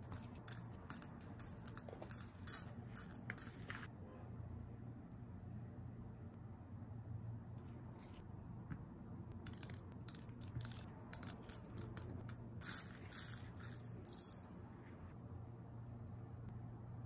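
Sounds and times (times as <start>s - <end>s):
beads clicking and rattling: 0.0s - 3.9s, 9.4s - 14.6s.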